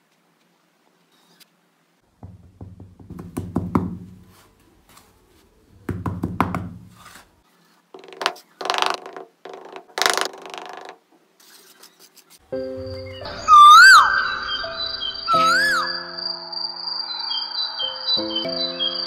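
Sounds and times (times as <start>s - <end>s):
blade scraping hard base: 6.8s - 7.4s
trowel scraping sand: 6.8s - 7.4s.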